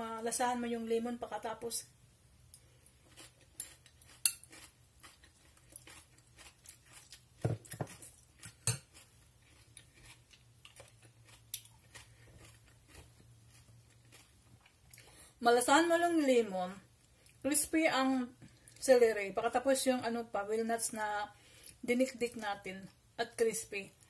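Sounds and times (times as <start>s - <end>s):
fork clinking on glass bowl: 4.2s - 4.6s, 7.7s - 9.0s.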